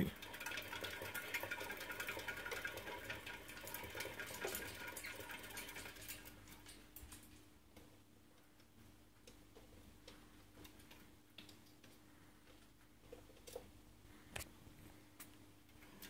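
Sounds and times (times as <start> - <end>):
rat running in plastic wheel: 0.0 - 7.3.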